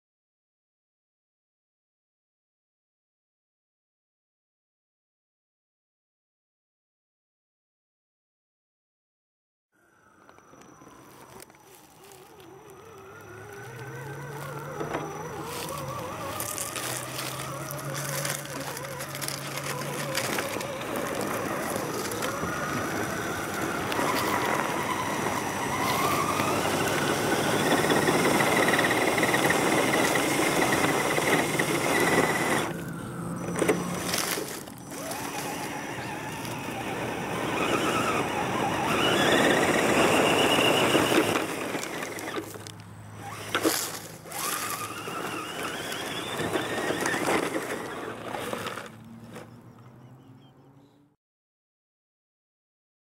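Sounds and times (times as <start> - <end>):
electric motor and gears whining: 9.8 - 50.7
tyres scrabbling in loose dirt: 10.2 - 50.0.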